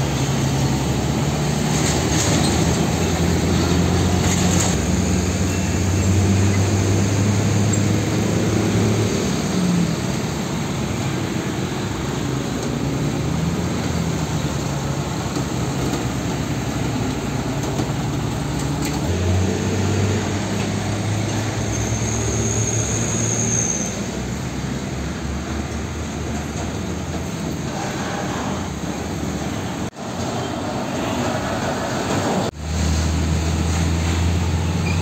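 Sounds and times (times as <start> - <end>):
diesel trucks driving past: 0.0 - 35.0
street traffic: 0.0 - 35.0
brief high squeal: 21.5 - 24.2.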